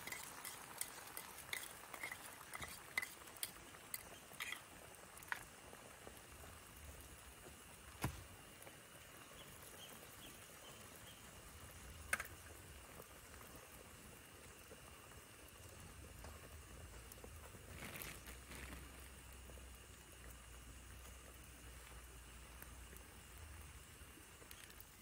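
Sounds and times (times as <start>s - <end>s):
faint chirps: 9.0s - 11.6s.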